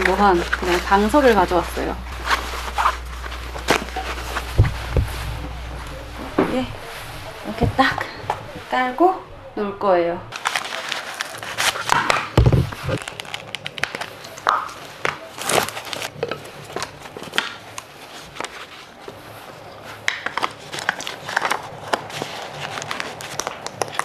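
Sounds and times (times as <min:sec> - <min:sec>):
mat rustling and crinkling: 0:00.0 - 0:09.1, 0:10.3 - 0:24.0
dull thump: 0:03.0 - 0:06.8.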